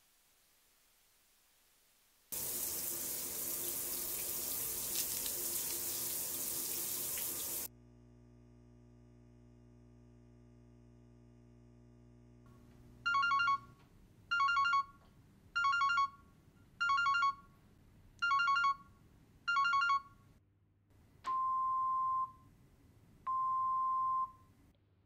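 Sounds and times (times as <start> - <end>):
cordless phone trilling rings: 13.1 - 13.7, 14.3 - 14.9, 15.6 - 16.2, 16.8 - 17.4, 18.2 - 18.9, 19.5 - 20.1.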